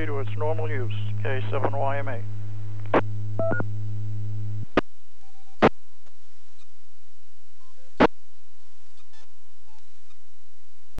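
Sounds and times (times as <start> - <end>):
faint electronic beeps: 0.0 - 3.7, 4.6 - 6.9, 7.5 - 8.1, 8.8 - 10.4
radio receiver hum: 0.0 - 11.0.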